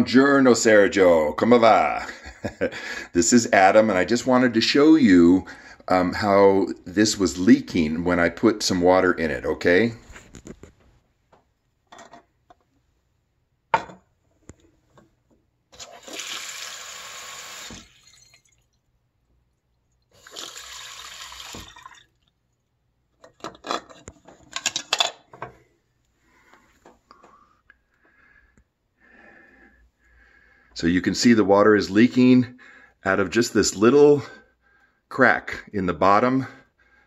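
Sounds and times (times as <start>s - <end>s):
tap water pouring through funnel: 15.8s - 18.9s, 19.7s - 22.4s.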